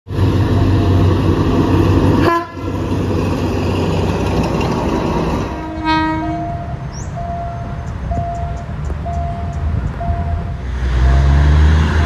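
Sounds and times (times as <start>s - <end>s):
diesel locomotive passing: 0.1s - 12.0s
rumble of passing train: 0.1s - 12.0s
train horn toot: 2.2s - 2.8s, 5.6s - 6.8s.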